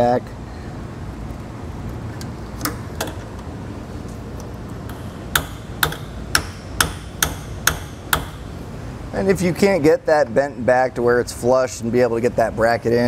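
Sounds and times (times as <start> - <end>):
hand tool striking metal: 4.9 - 8.6.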